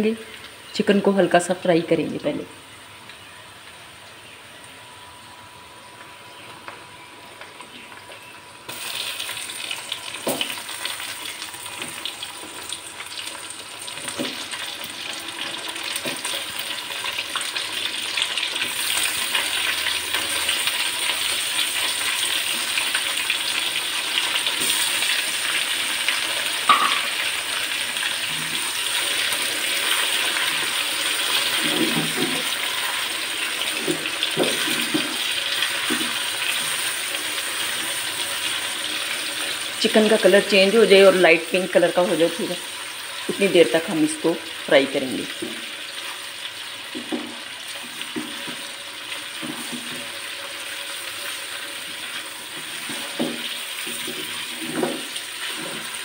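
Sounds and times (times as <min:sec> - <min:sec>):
chicken sizzling in hot oil: 0:05.2 - 0:56.0
stirring knocks: 0:49.3 - 0:50.1.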